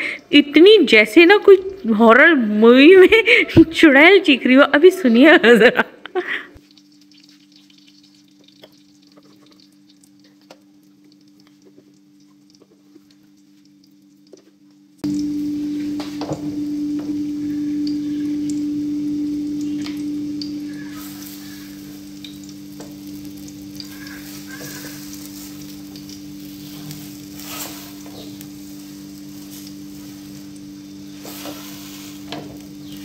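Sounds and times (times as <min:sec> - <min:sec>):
faint appliance hum: 0:00.0 - 0:33.0
loud sizzling hiss: 0:15.0 - 0:33.0
steady droning tone: 0:15.0 - 0:33.0.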